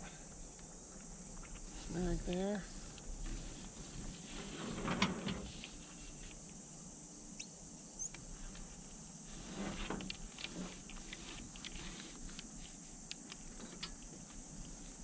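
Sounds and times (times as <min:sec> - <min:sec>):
high chorus of insects: 0:00.0 - 0:15.0
gloved hands rustling and clicking: 0:10.0 - 0:14.8.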